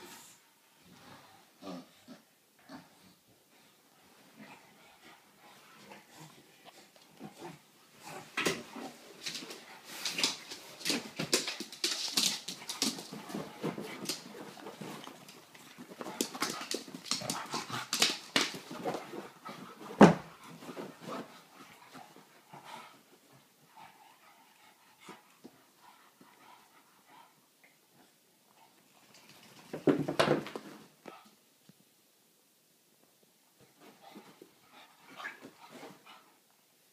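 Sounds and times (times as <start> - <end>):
puppies scuffling: 6.8 - 24.4.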